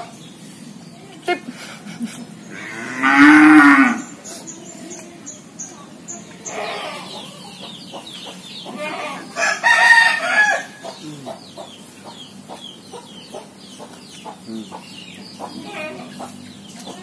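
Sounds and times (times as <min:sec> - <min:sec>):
hens clucking: 0:00.0 - 0:17.0
rooster crowing: 0:08.7 - 0:11.0.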